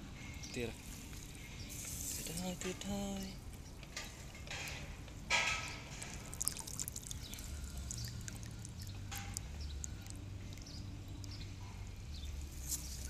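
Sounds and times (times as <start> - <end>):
water splashing and dripping: 5.3 - 13.0.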